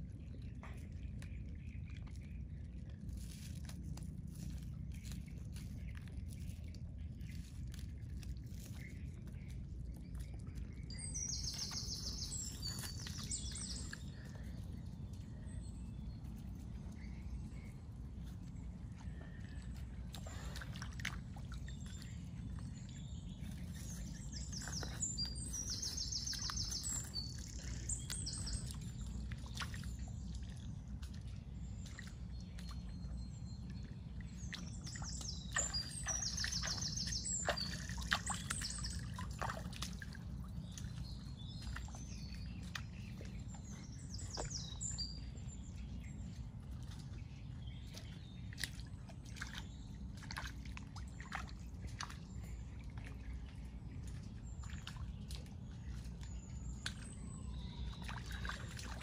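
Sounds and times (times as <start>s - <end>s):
low rumble: 0.0s - 36.8s
bird singing with trill: 8.5s - 17.9s, 21.6s - 30.8s, 31.8s - 39.6s, 40.6s - 46.5s, 54.3s - 59.0s.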